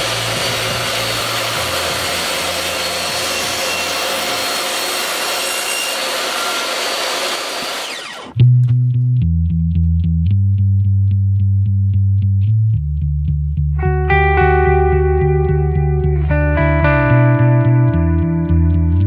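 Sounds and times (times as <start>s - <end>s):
table saw cutting wood: 0.0s - 8.4s.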